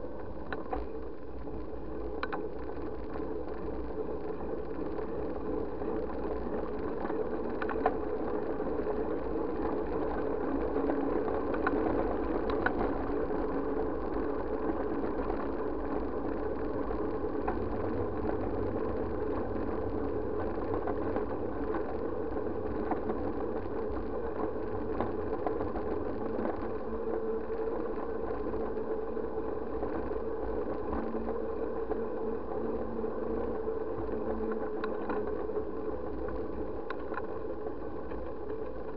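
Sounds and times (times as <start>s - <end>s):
bike riding on asphalt: 0.0s - 38.9s.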